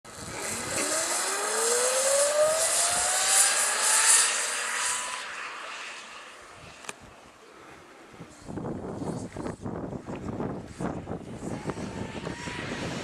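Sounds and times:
electric motor whining: 0.1 - 6.1, 11.1 - 13.0.

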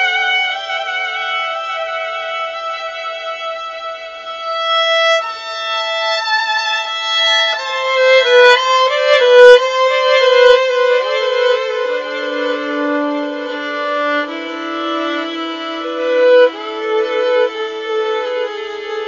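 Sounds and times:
violin playing slow notes: 0.0 - 19.0.

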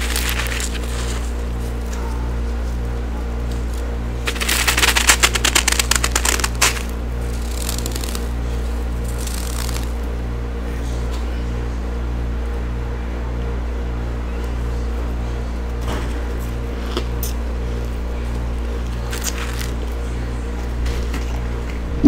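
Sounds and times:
frost crunching and scraping: 0.0 - 10.1, 16.2 - 21.6
steady low hum: 0.0 - 22.0.

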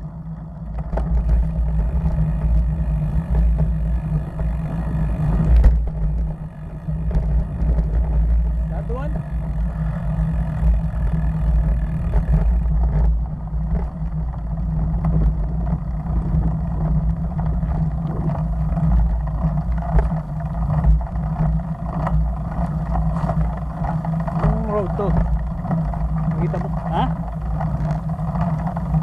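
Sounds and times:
bike clicks and rattles: 0.0 - 29.0
road noise: 0.0 - 29.0
wind buffeting microphone: 10.6 - 29.0.

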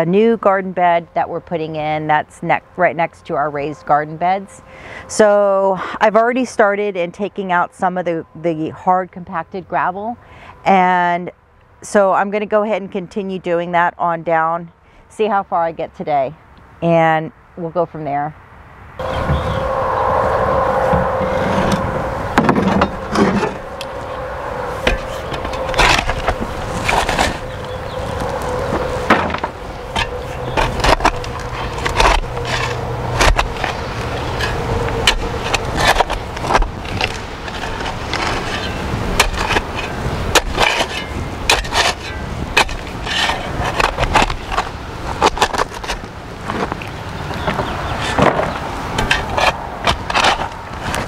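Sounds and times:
shovel scraping into gravel: 30.0 - 45.9.

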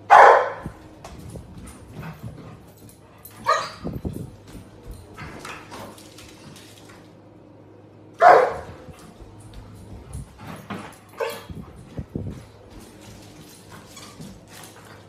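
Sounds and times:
puppy barking: 0.1 - 0.8, 3.4 - 3.9, 8.2 - 8.8.

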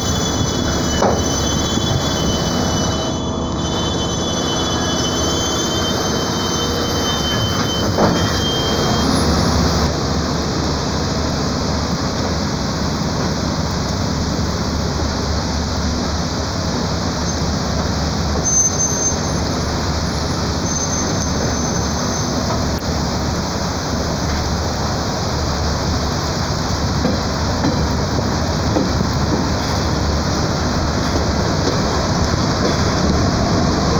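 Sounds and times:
high-pitched wheel squeal: 0.0 - 9.9, 18.4 - 22.5
train wheels rumbling on rail: 0.0 - 33.9.

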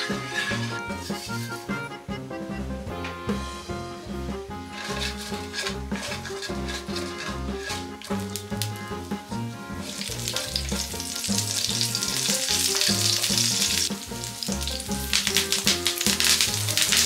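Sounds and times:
chillies sizzling in hot oil: 0.0 - 1.4, 4.7 - 17.0.

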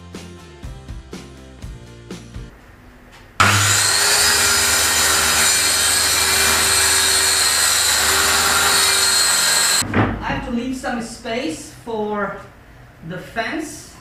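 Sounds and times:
circular saw cutting wood: 3.4 - 9.8.

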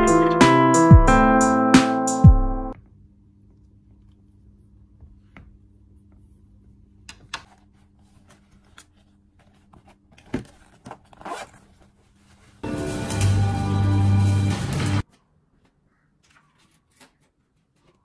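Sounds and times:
loud music: 0.0 - 2.8, 12.6 - 15.0.

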